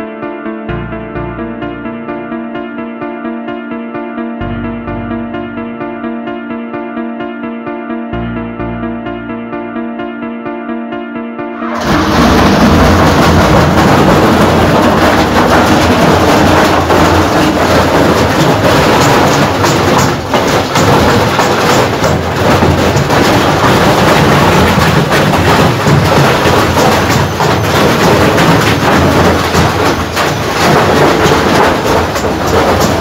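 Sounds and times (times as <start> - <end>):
washing machine clattering and banging: 11.6 - 33.0.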